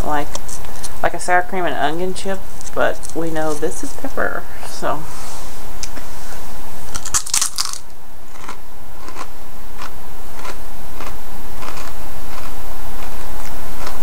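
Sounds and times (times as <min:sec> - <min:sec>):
chewing crunches: 0:06.9 - 0:14.0
potato chip crunching: 0:06.9 - 0:14.0.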